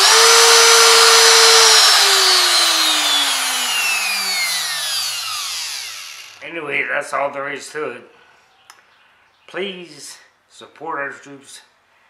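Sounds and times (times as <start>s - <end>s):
spindle motor whining down: 0.0s - 6.4s.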